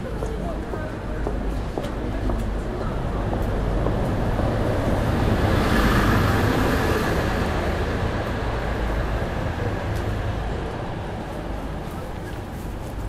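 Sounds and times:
steady low traffic rumble: 0:00.0 - 0:13.0
vehicle passing close by: 0:04.2 - 0:09.6.

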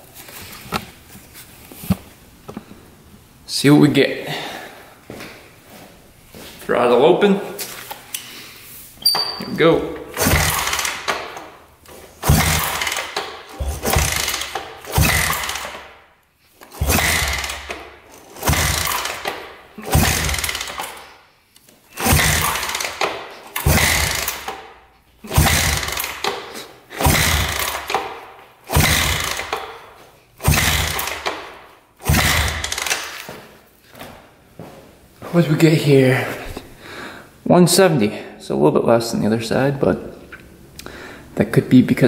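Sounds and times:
motorcycle engine cranking: 0:09.1 - 0:21.2, 0:21.9 - 0:33.3.

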